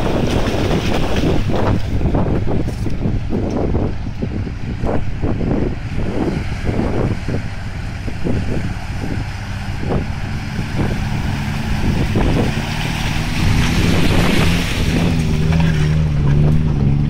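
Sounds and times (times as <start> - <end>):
mud splashing: 0.0 - 3.0, 6.4 - 17.0
four by four engine running: 0.0 - 17.0.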